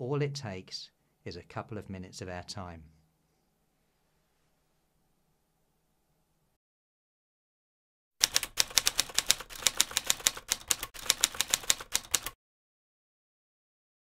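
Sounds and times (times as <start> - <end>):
typewriter keys clacking: 8.2 - 12.4.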